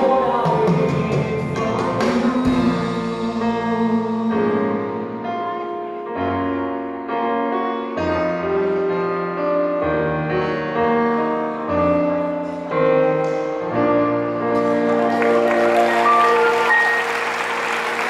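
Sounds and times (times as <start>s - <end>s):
bass notes: 0.0s - 5.5s
keyboard chords: 0.0s - 18.0s.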